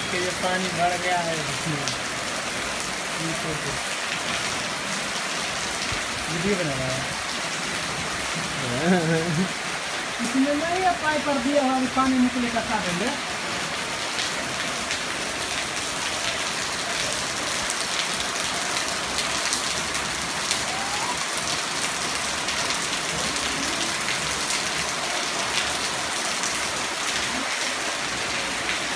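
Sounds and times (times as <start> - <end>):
heavy rain pouring: 0.0 - 28.9.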